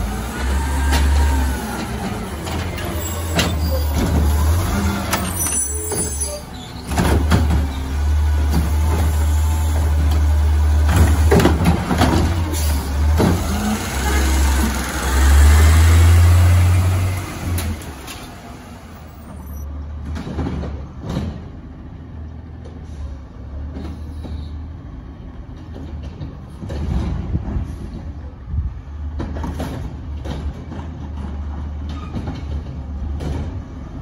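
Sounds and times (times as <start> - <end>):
garbage truck diesel engine revving: 0.0 - 19.4.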